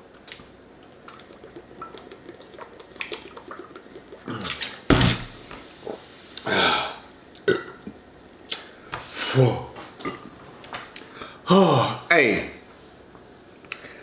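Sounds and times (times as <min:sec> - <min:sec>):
person gulping soda: 0:00.3 - 0:04.9
bottle thump: 0:04.9 - 0:05.4.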